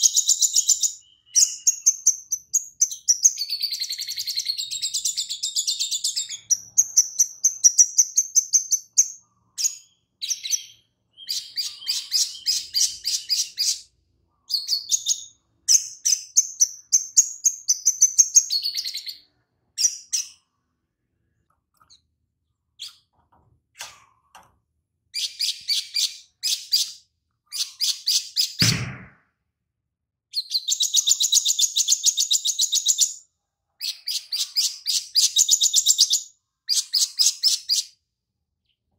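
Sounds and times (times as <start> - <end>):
bird singing high trills: 0.0 - 15.4
low thump: 28.6 - 29.2.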